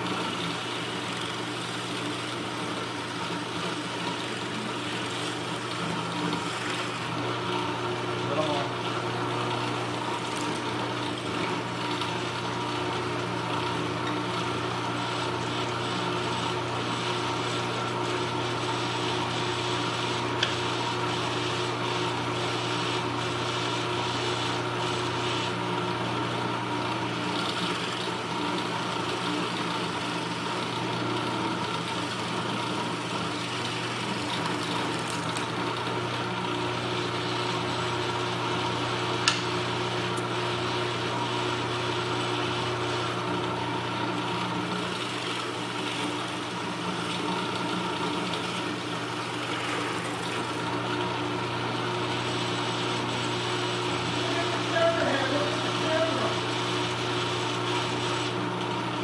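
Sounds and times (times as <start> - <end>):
drill press motor humming: 0.0 - 59.0
sharp click: 39.2 - 39.6.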